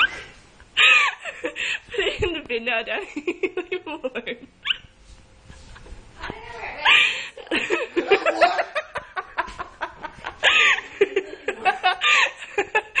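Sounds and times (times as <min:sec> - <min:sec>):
people laughing: 0:06.8 - 0:13.0.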